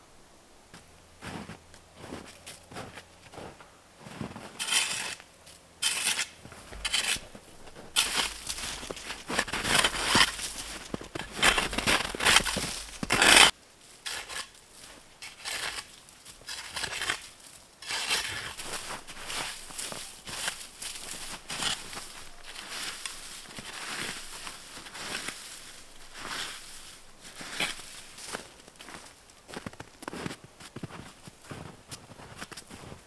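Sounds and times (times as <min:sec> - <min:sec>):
leaves rustling: 0:00.9 - 0:33.0
metal spade scraping snow: 0:04.1 - 0:30.3.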